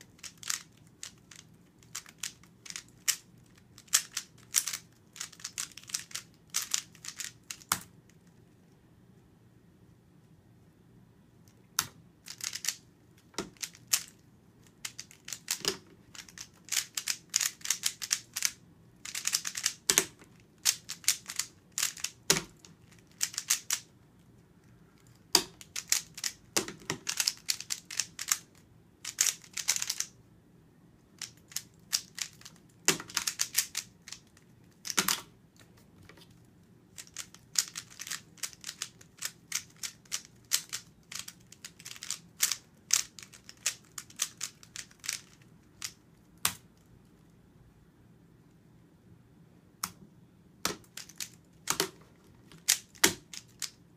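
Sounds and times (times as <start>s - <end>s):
speed cube plastic clicking turns: 0.0s - 7.9s, 11.8s - 23.9s, 25.0s - 30.1s, 31.2s - 35.2s, 36.9s - 46.6s, 50.7s - 53.8s.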